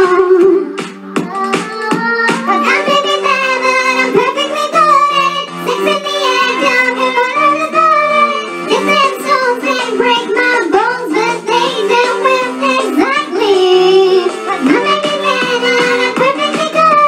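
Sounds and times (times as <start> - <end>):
backing music track: 0.0 - 17.0
woman singing: 5.7 - 17.0.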